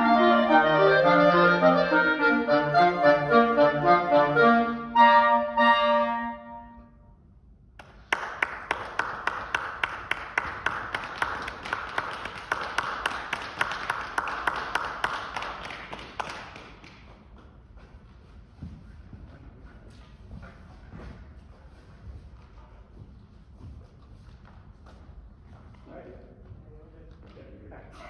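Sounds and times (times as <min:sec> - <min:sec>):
clarinets playing final chord: 0:00.0 - 0:06.9
audience applauding: 0:07.8 - 0:17.1.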